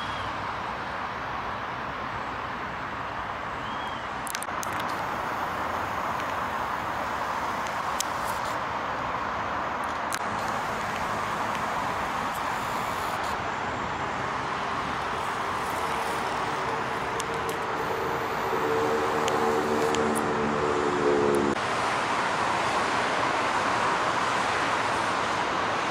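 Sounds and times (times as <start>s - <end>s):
distant road traffic hum: 0.0s - 25.9s
pitched humming tone: 14.7s - 21.6s.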